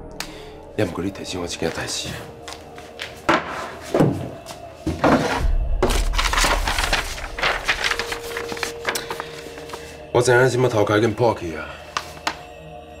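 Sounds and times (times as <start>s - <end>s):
paper rustling: 1.7s - 10.0s, 11.8s - 12.5s
knocks and thuds of handling: 3.3s - 6.0s.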